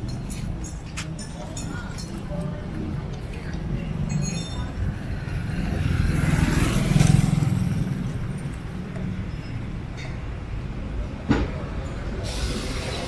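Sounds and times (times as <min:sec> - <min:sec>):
vehicle passing by: 0:05.0 - 0:09.0.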